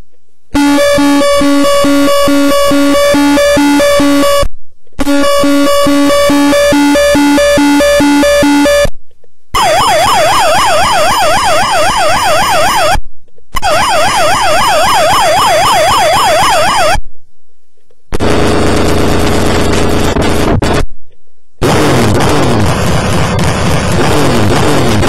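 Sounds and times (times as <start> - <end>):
harsh crackling noise: 0.0 - 17.0, 17.8 - 25.0
toy electronic siren: 0.6 - 8.9, 9.6 - 13.0, 13.6 - 17.0.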